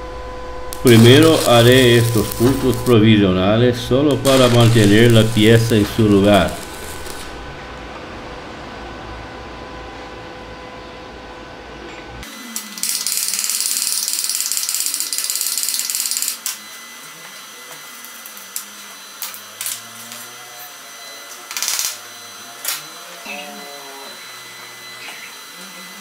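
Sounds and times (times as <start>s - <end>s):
welding arc crackling: 0.6s - 7.6s, 12.2s - 16.7s, 18.0s - 20.3s, 21.5s - 22.8s.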